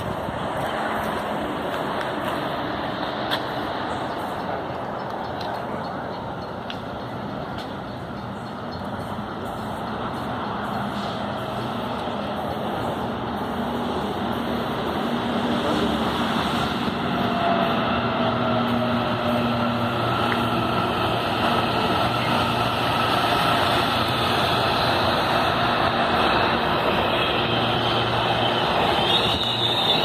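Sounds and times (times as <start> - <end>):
train wheels rumbling on rails: 0.0 - 30.0.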